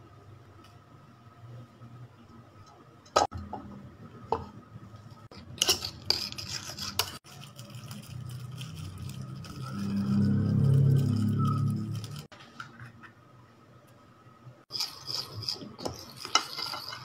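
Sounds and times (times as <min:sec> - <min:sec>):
cutlery scraping a ceramic bowl: 0:05.3 - 0:12.1, 0:14.7 - 0:17.0.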